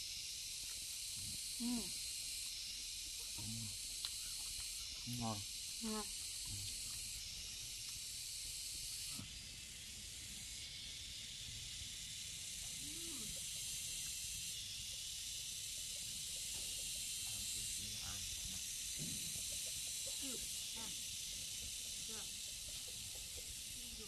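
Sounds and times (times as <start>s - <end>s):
high-pitched hiss: 0.0s - 24.0s.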